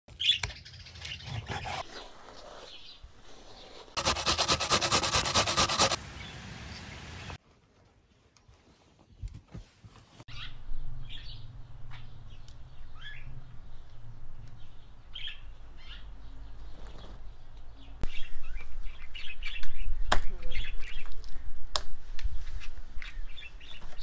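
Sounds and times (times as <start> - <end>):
small birds chirping: 0.1 - 4.0, 10.3 - 21.5, 22.3 - 24.0.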